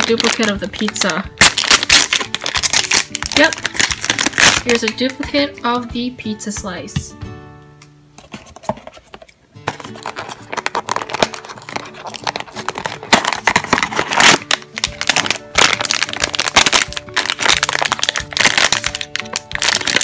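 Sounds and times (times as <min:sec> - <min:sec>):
foil bag crinkling: 0:00.0 - 0:05.2, 0:09.6 - 0:20.0
background music: 0:00.0 - 0:20.0.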